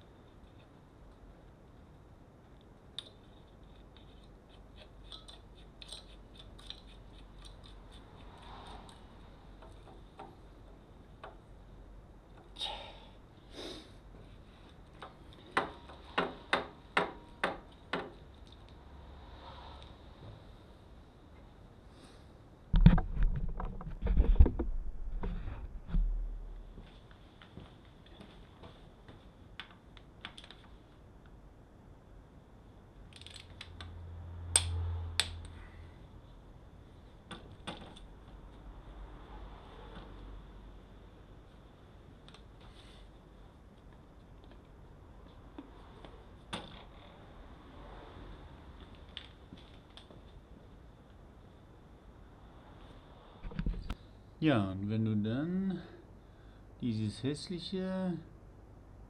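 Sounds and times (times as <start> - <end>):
hand tools clicking and clanking: 3.9 - 9.0.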